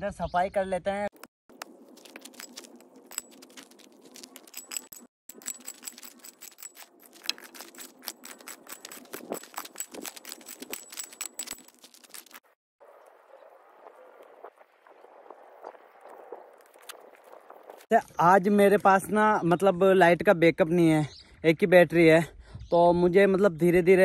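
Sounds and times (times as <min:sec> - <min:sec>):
gravel rattling and scraping: 0:01.5 - 0:12.6, 0:15.0 - 0:17.9.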